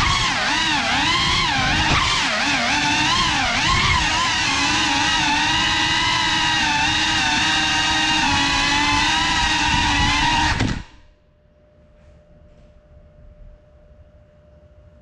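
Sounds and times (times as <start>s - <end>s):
drone motors whining: 0.0s - 11.1s.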